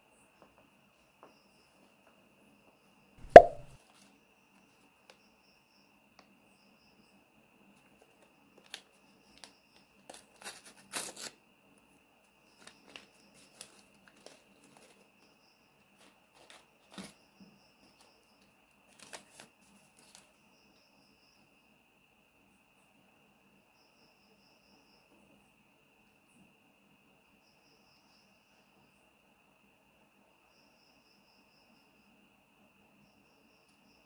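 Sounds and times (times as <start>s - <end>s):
paper packet tearing and crinkling: 10.4s - 11.3s.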